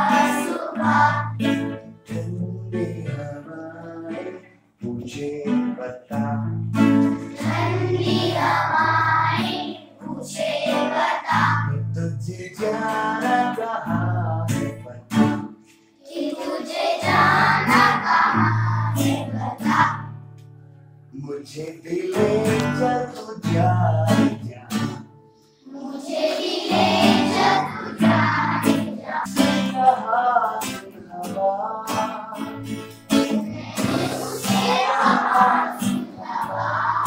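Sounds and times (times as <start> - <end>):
children singing: 0.0 - 4.5, 6.9 - 11.8, 16.0 - 20.1, 25.5 - 37.0
guitar accompaniment: 0.0 - 37.0.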